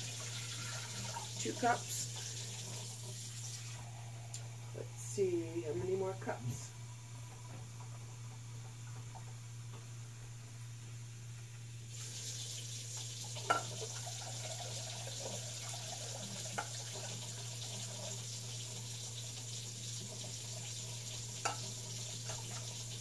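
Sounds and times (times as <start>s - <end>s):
cup filling with water: 0.0s - 4.4s, 11.9s - 23.0s
kitchen faucet running: 0.0s - 5.1s, 11.9s - 23.0s.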